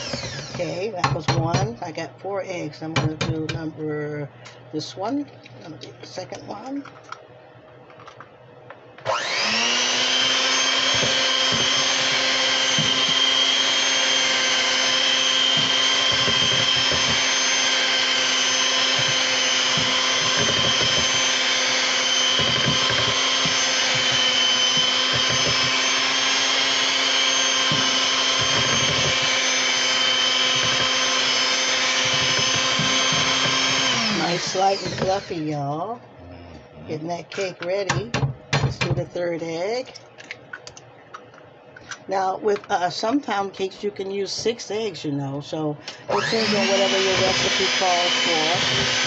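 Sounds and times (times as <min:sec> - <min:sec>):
electric hand mixer whine: 0:00.0 - 0:01.9, 0:08.9 - 0:35.9, 0:45.9 - 0:49.0.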